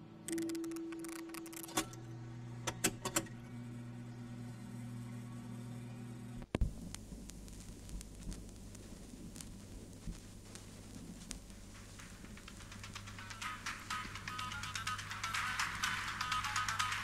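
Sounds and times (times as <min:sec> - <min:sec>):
low steady hum: 0:00.0 - 0:17.0
stylus clicks and crackles: 0:00.3 - 0:02.0, 0:06.4 - 0:17.0.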